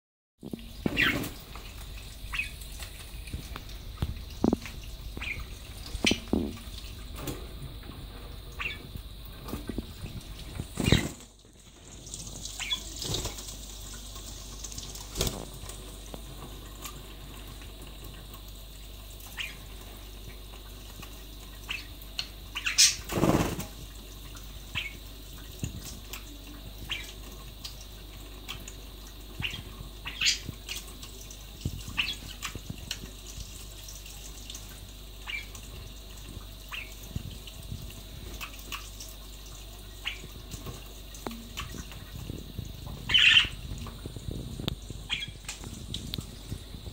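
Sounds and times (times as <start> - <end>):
budgerigars chirping: 0.9 - 1.4, 8.6 - 8.9, 22.6 - 23.1, 24.8 - 25.0, 29.4 - 30.5, 32.0 - 32.4, 43.1 - 43.6, 45.1 - 45.4.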